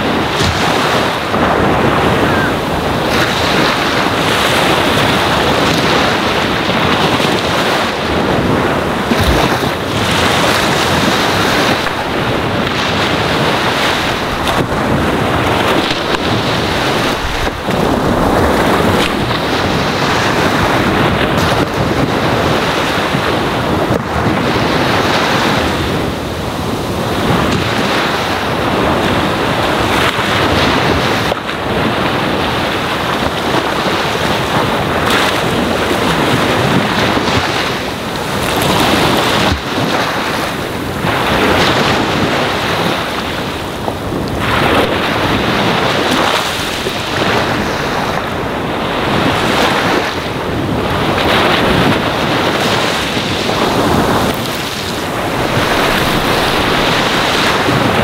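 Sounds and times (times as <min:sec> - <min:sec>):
ocean waves on shore: 0:00.0 - 0:58.0.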